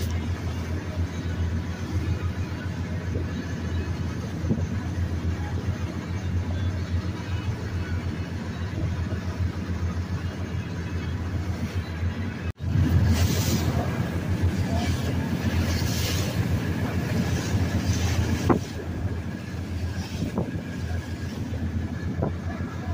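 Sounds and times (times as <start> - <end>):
boat engine drone: 0.0 - 22.9
rush of boat wake: 0.0 - 22.9
wind on microphone: 12.6 - 22.9.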